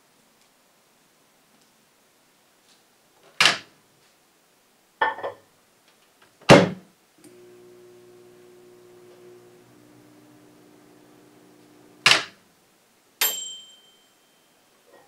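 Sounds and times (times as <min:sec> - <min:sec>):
microwave oven humming: 0:07.2 - 0:12.4
microwave door thunk: 0:12.0 - 0:12.4.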